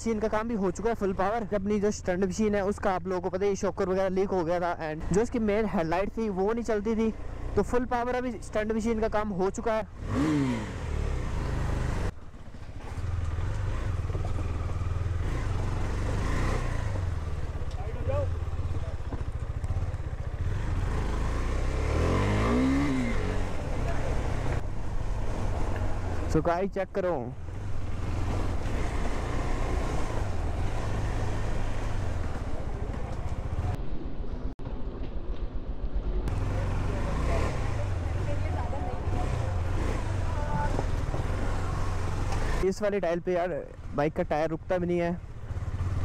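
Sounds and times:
motorcycle engine running: 0:07.0 - 0:26.3, 0:36.3 - 0:46.0.

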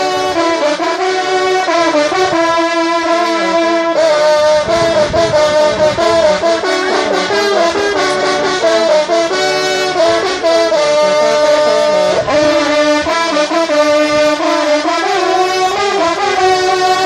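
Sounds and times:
hunting horns playing fanfare: 0:00.0 - 0:17.0.

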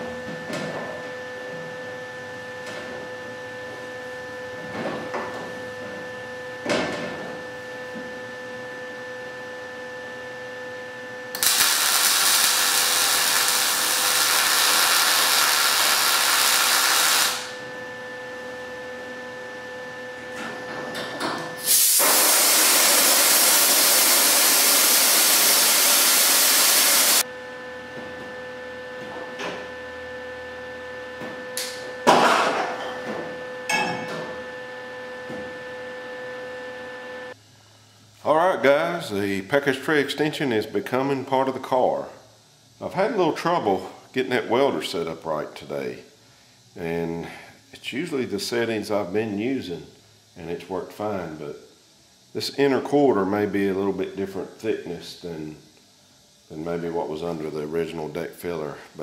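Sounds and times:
welding arc burning: 0:11.3 - 0:17.6, 0:21.6 - 0:27.2.

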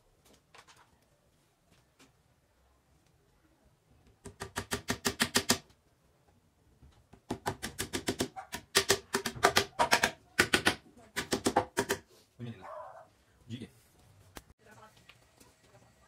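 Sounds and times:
hammer tapping wooden dowels: 0:04.1 - 0:05.7, 0:07.0 - 0:12.1.

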